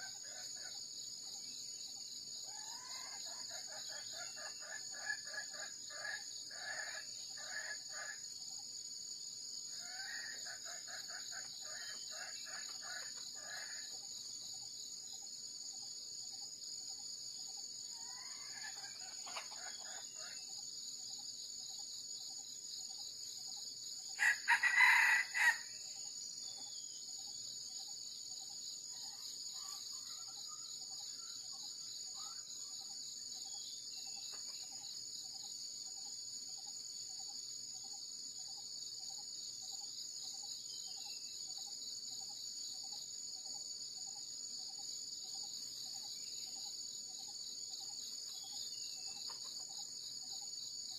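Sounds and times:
repeated clucking calls: 19.0s - 19.8s
rooster crowing: 24.2s - 25.7s.

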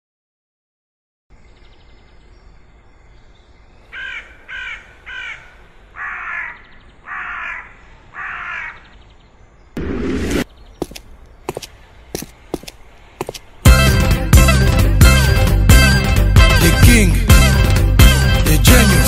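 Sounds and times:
crow cawing: 3.9s - 8.9s.

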